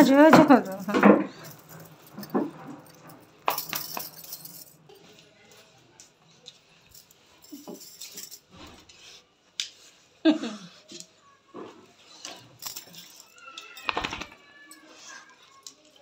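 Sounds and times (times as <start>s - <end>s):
clinking and jangling: 0.0s - 5.7s, 6.5s - 8.8s, 12.2s - 16.0s.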